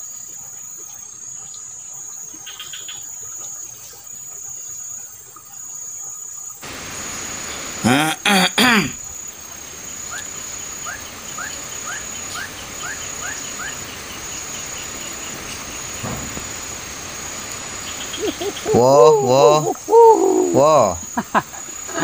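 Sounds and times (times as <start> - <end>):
insects trilling: 0.0 - 22.0
man's voice: 18.7 - 21.1.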